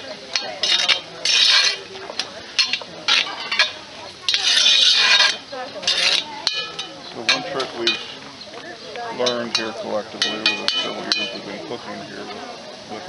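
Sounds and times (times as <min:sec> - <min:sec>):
spoon clinking against iron: 0:00.3 - 0:01.8, 0:02.6 - 0:08.2, 0:09.2 - 0:11.5
metal spoon scraping a pot: 0:00.4 - 0:01.9, 0:02.5 - 0:08.2.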